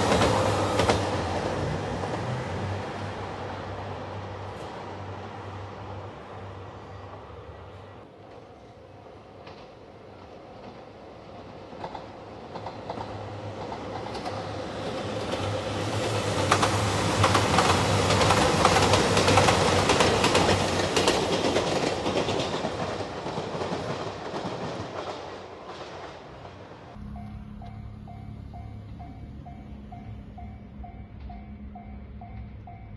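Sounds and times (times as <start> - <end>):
diesel train passing: 0.0 - 32.9
wheels clattering over rail joints: 11.7 - 27.0.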